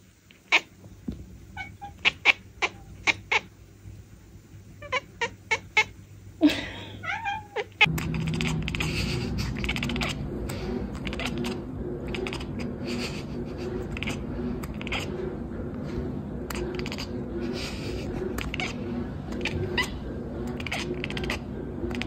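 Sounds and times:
background hiss: 0.0 - 11.3
cat chattering: 0.3 - 0.7, 1.6 - 3.6, 4.8 - 6.0, 7.0 - 15.4, 16.4 - 22.0.

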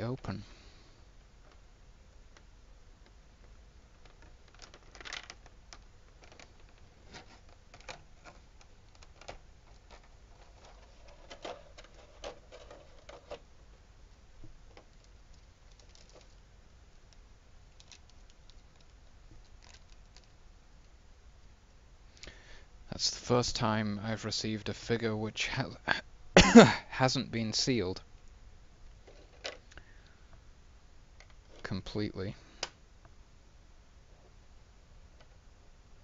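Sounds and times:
plastic crinkling: 3.9 - 13.4, 14.7 - 16.4, 17.7 - 20.4.

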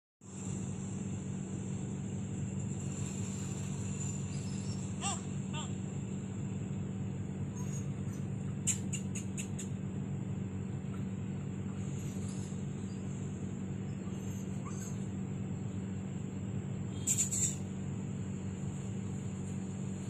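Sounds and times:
high-pitched whine: 0.2 - 9.3
low hum: 0.2 - 20.0
squeaky chirps: 7.5 - 9.8, 13.8 - 15.1, 16.9 - 17.7.

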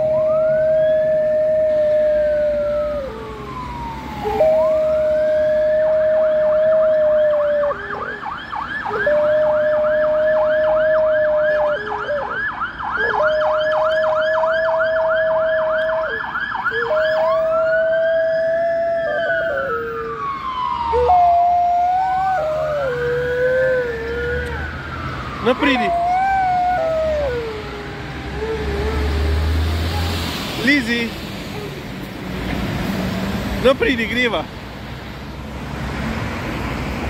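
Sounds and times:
dog howling: 0.0 - 3.6, 4.2 - 8.2, 8.9 - 12.4, 13.0 - 24.8, 25.4 - 30.1
ambulance siren: 0.0 - 32.1.

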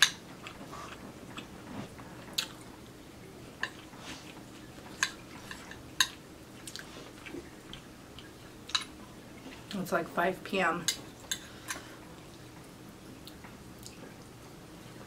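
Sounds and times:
quiet chewing: 0.0 - 2.8, 3.6 - 9.8.

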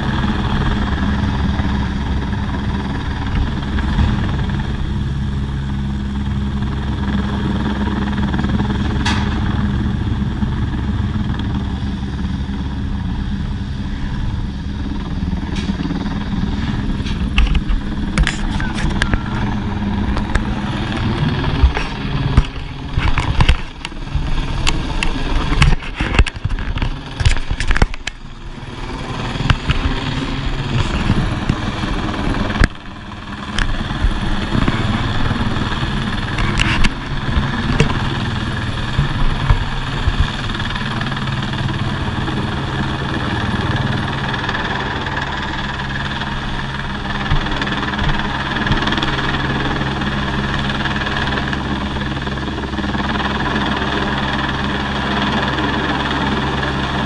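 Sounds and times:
helicopter hovering: 0.0 - 57.0.

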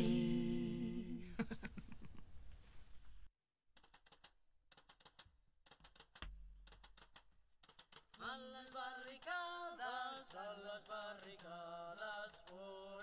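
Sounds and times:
person singing: 0.0 - 1.3, 8.2 - 13.0
faint rapid clicks: 3.8 - 13.0.

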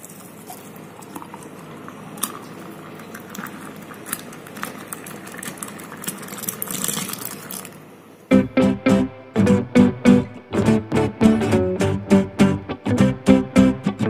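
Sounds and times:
liquid pouring into steel tumbler: 0.0 - 7.8.

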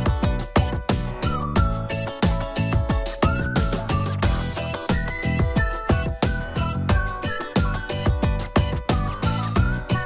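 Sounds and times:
steady drum beat: 0.0 - 9.9
sliding lead melody: 0.0 - 10.0.

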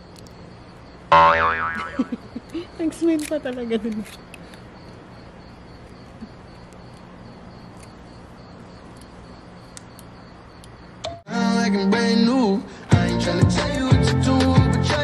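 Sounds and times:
low steady hum: 0.0 - 2.7
crickets chirping: 0.0 - 15.0.

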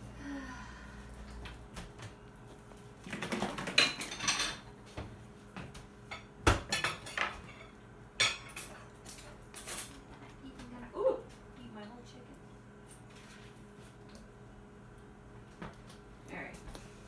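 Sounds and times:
dishes and cutlery clattering: 3.6 - 4.7, 6.1 - 10.0.

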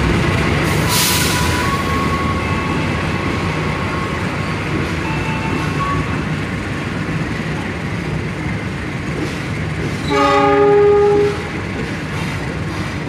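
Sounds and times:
train wheels rumbling on rail: 0.0 - 13.0
train horn: 10.0 - 11.6.

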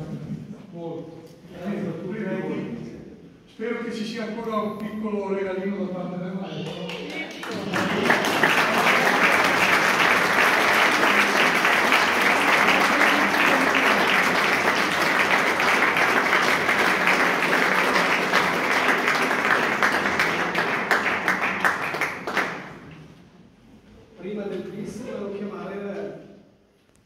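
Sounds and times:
audience clapping: 6.6 - 23.1.

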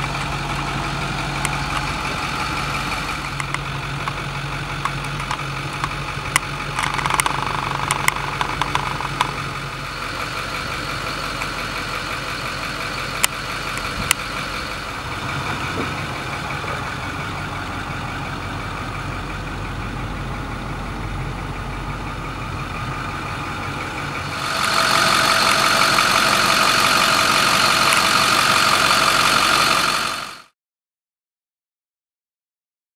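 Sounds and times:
truck engine idling: 0.0 - 30.5
sharp clicks: 4.8 - 9.4.

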